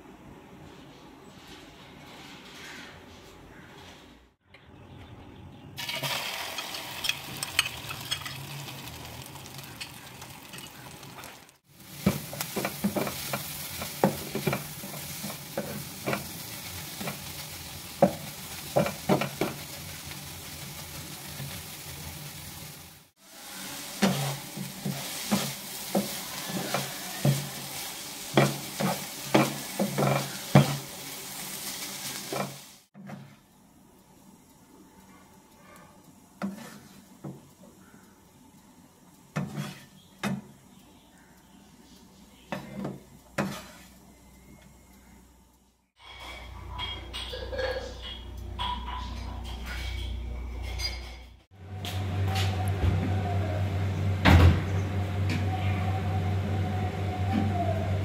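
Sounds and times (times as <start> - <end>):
vegetables sizzling in oil: 5.8 - 32.9
spatula tapping and scraping pan: 12.0 - 17.3, 17.9 - 19.7, 24.0 - 30.9, 36.4 - 37.5, 39.3 - 40.5, 42.5 - 44.0.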